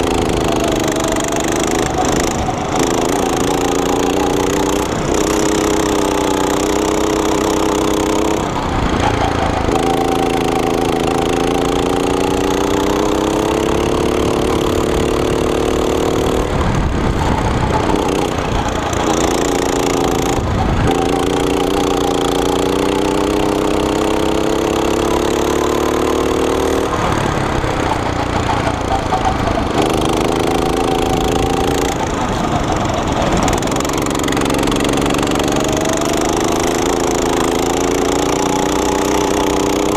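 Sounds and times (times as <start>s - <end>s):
go-kart engine revving: 0.0s - 39.9s
track noise: 0.0s - 39.9s
wind rushing on microphone: 16.2s - 21.6s.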